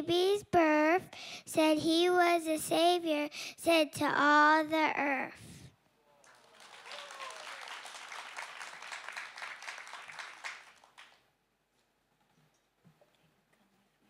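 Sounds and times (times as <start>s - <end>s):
audience applauding: 6.2s - 11.3s.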